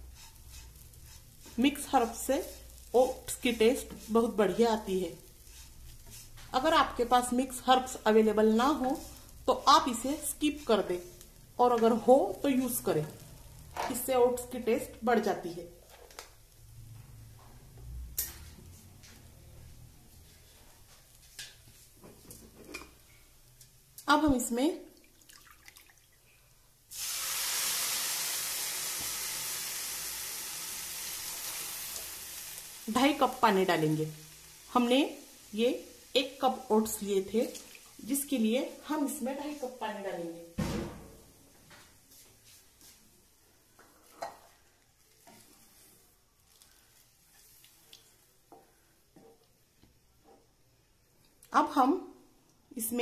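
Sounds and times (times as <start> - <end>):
wooden spatula scraping pan: 0.0 - 12.0
faint sizzle of water: 0.0 - 40.6, 41.2 - 53.0
water pouring into plastic cup: 25.1 - 26.2.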